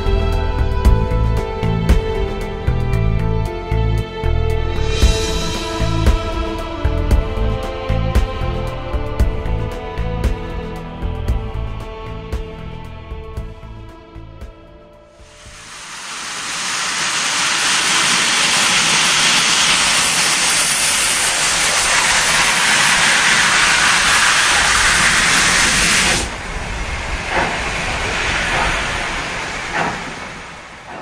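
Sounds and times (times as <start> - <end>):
steam locomotive hissing: 4.8 - 7.0, 15.2 - 31.0.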